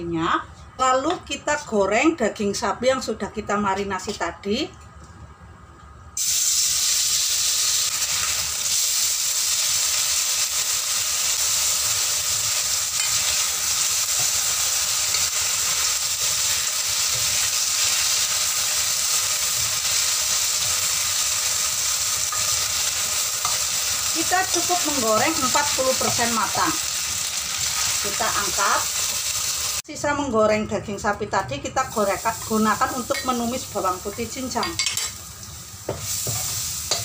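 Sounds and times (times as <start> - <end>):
meat sizzling in hot oil: 6.2 - 29.9, 31.9 - 37.0
spatula stirring in a wok: 11.1 - 28.0, 34.8 - 37.0.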